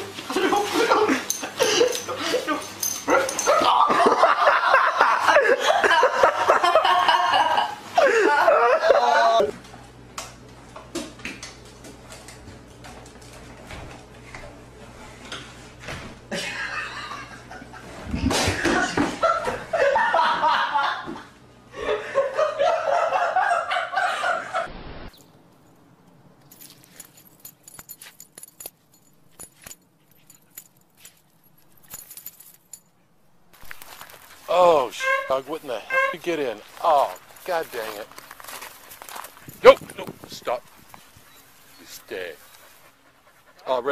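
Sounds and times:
people laughing: 0.3s - 9.5s, 16.3s - 24.7s.

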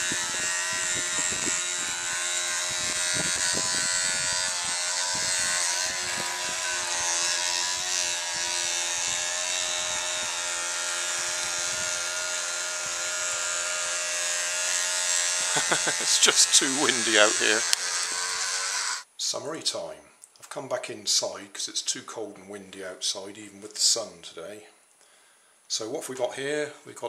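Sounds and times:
wind buffeting microphone: 0.0s - 6.8s
electric toothbrush buzzing: 0.0s - 19.1s.

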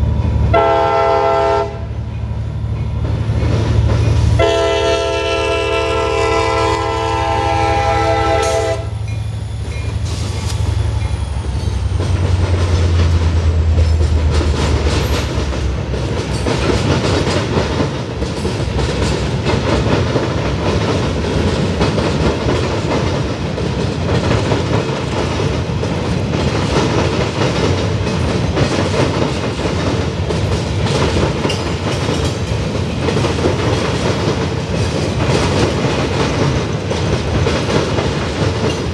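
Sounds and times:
train horn: 0.5s - 1.9s, 4.4s - 9.0s
train wheels clattering over rail joints: 0.6s - 38.9s.

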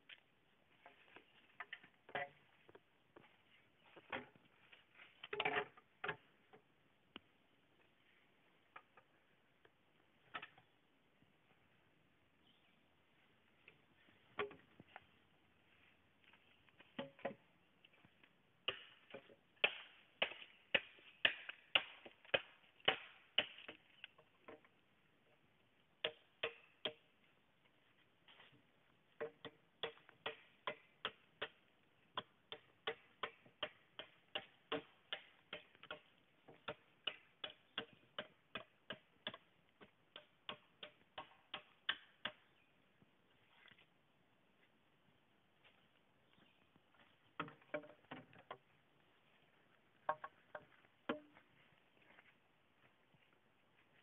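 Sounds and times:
machete chopping bamboo: 18.6s - 23.9s, 26.0s - 27.1s, 29.2s - 31.6s, 32.2s - 39.4s, 40.1s - 42.5s.

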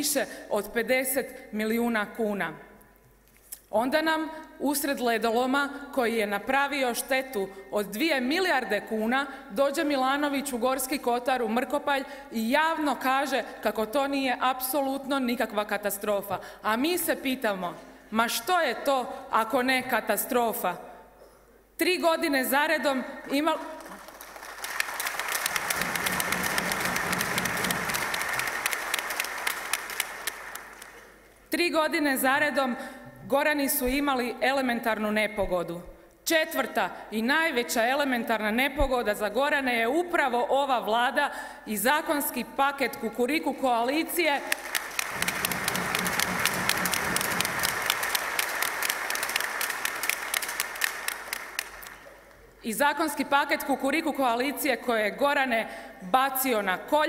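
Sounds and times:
crowd applauding: 23.8s - 31.3s, 44.5s - 52.2s.

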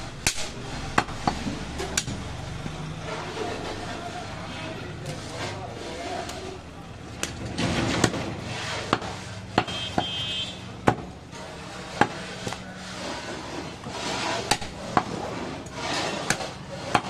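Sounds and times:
knife chopping meat on wood: 8.9s - 10.1s.

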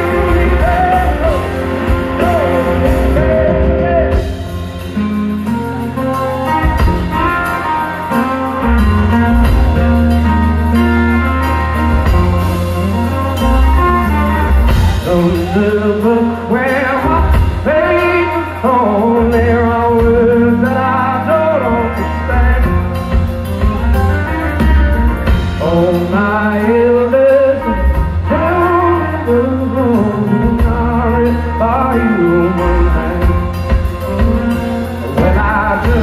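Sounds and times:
man singing: 0.0s - 5.2s, 14.7s - 23.6s, 25.3s - 36.0s
strong bass: 0.0s - 6.0s, 6.6s - 36.0s
live rock band playing: 0.0s - 36.0s.

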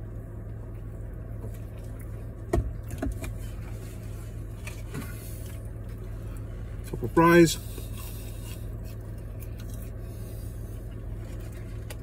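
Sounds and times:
car interior hum: 0.0s - 12.0s.

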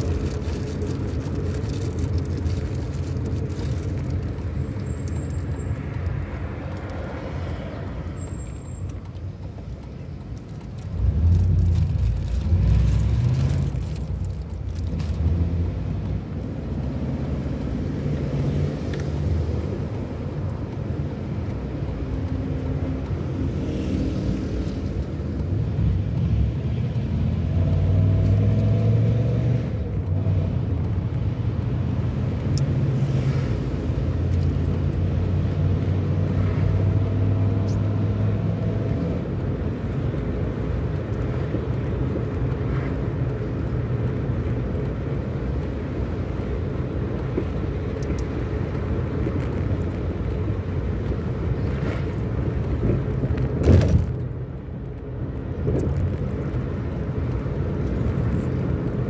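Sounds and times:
car engine: 0.0s - 59.0s
road rumble inside car: 0.0s - 59.0s.

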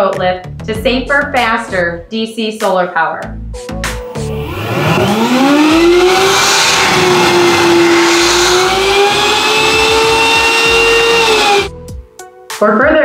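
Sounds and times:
blower motor whine: 3.9s - 11.7s
rush of air: 4.0s - 11.7s.

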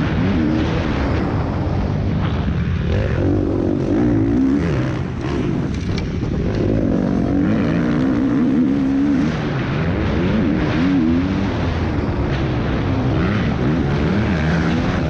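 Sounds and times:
motocross bike engine revving: 0.0s - 15.0s.

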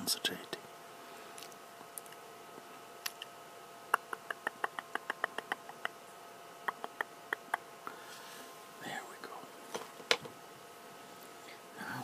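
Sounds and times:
mouth clicks: 3.9s - 6.0s, 6.6s - 7.6s.

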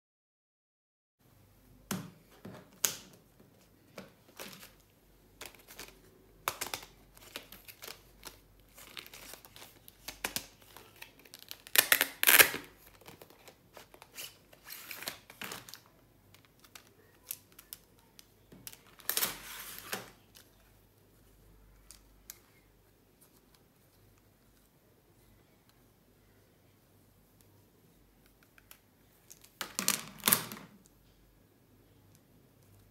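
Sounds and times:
plastic packaging crinkling and tearing: 5.4s - 20.6s.

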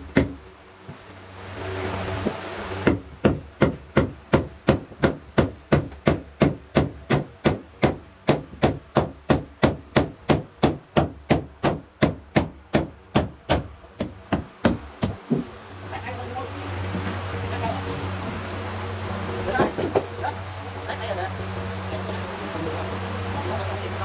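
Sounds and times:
hand tool striking wood: 0.0s - 0.4s, 2.8s - 15.5s.

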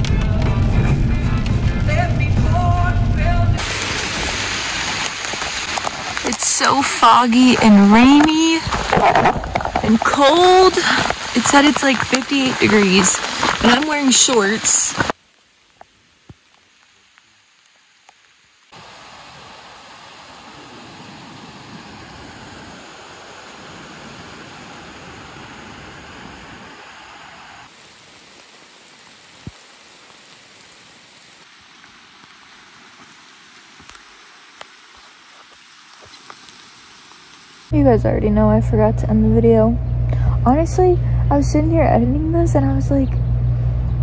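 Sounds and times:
river roaring through rocks: 3.6s - 15.2s, 18.8s - 27.8s.

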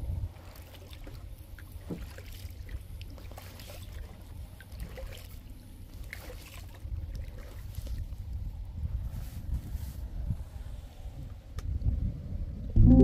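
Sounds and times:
paddle splashing in water: 0.3s - 8.2s
water drips and trickles: 0.3s - 8.5s
steady low rumble: 12.0s - 13.0s.

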